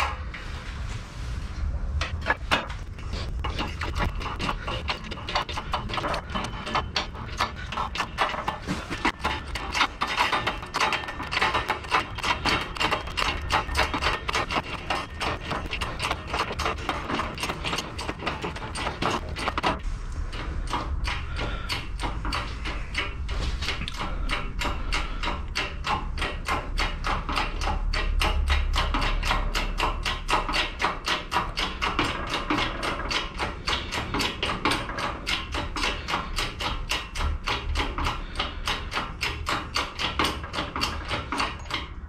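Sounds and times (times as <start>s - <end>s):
low rumble: 0.0s - 8.0s
arbor press broach clicking: 2.0s - 42.0s.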